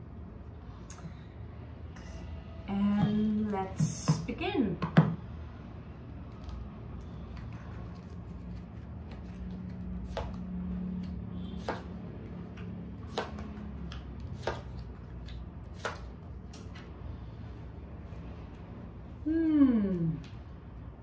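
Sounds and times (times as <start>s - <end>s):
low steady hum: 0.0s - 21.0s.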